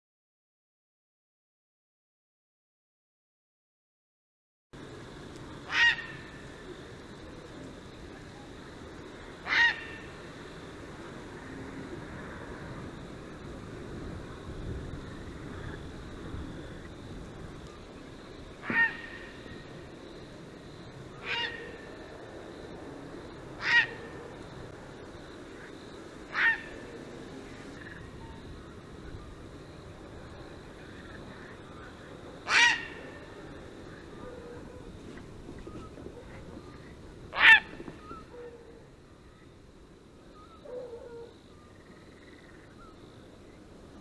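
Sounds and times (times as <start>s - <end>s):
heron calls: 5.7s - 6.4s, 9.4s - 10.2s, 18.6s - 19.6s, 21.2s - 21.8s, 23.6s - 24.2s, 26.3s - 27.0s, 32.4s - 33.3s, 37.3s - 38.6s.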